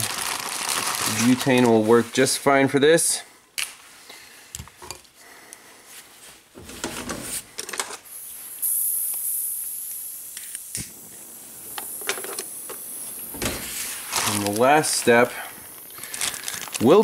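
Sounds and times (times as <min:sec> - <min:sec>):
gas hissing: 0:06.6 - 0:17.0.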